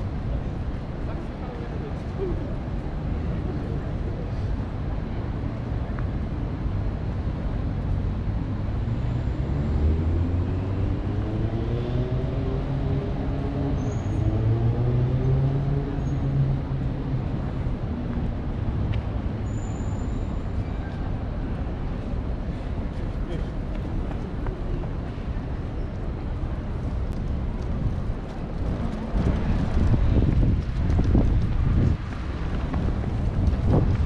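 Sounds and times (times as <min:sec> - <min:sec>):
city traffic rumble: 0:00.0 - 0:34.0.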